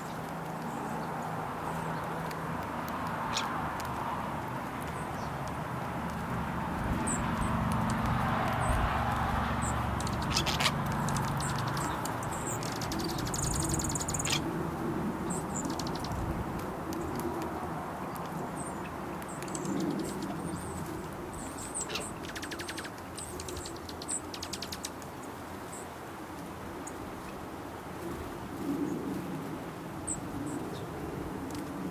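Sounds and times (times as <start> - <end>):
starling clicking rattles: 10.0 - 14.4.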